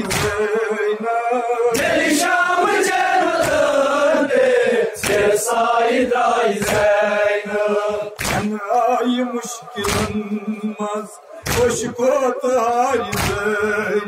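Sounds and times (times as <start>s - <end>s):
hands slapping chests: 0.0s - 0.4s, 3.4s - 3.7s, 5.0s - 5.4s, 6.6s - 6.9s, 8.2s - 8.5s, 9.8s - 10.2s, 13.1s - 13.4s
men chanting in unison: 0.0s - 14.0s.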